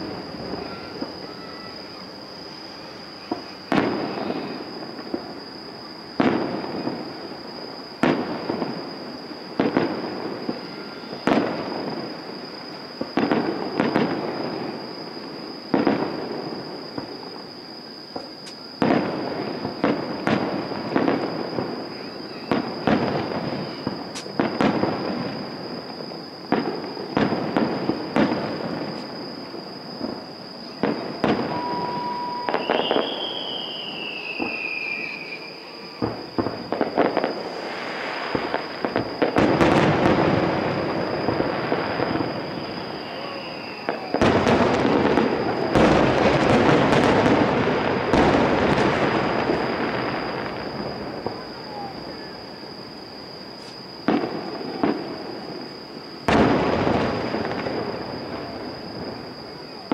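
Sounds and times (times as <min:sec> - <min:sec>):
falling firework whistle: 0:00.0 - 0:59.9
firework crackle: 0:00.0 - 0:59.9
firework shells booming: 0:18.1 - 0:52.8, 0:53.5 - 0:59.9.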